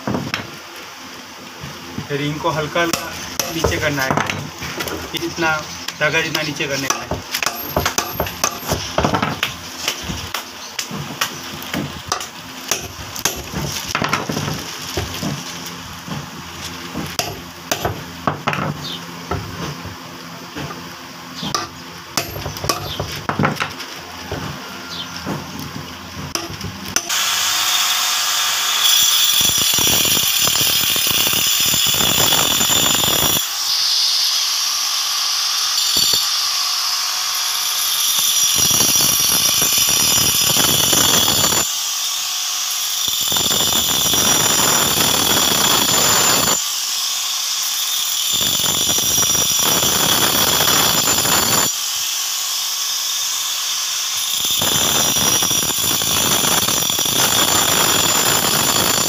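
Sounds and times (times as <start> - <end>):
angle grinder motor whine: 0.4 - 59.0
disc grinding stone: 2.0 - 34.4, 35.6 - 36.6, 37.3 - 41.7, 42.8 - 46.6.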